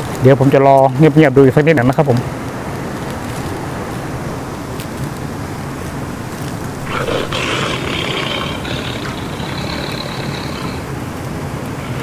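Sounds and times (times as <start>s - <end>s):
high rasping call: 6.8s - 12.0s.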